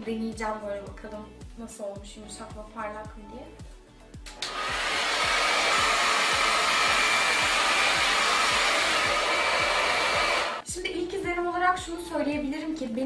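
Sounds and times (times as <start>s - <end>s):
hot-air brush blowing: 4.3s - 10.6s.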